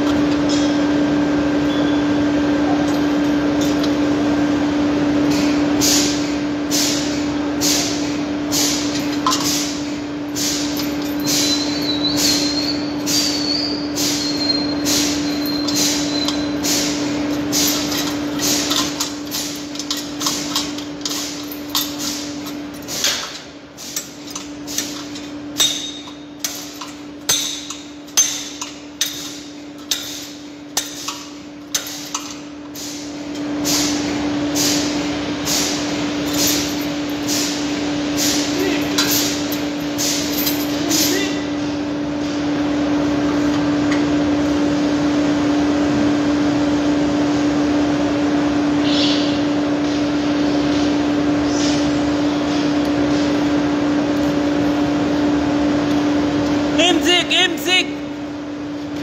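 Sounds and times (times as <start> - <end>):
sharp metal clanks: 14.0 - 32.4.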